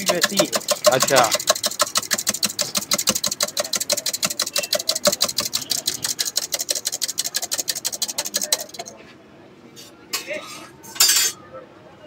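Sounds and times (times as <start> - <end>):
fork beating eggs in steel cup: 0.0 - 9.0.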